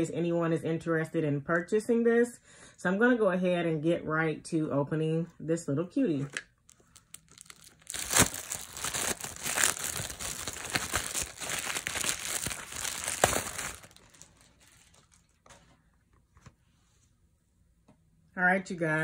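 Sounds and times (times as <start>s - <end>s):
plastic wrap crinkling: 6.7s - 15.8s.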